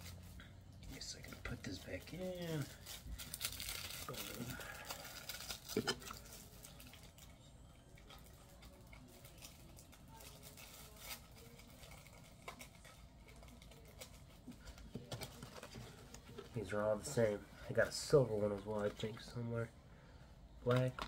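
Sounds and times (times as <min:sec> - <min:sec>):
packaging rustling: 0:01.0 - 0:07.3, 0:08.5 - 0:17.2.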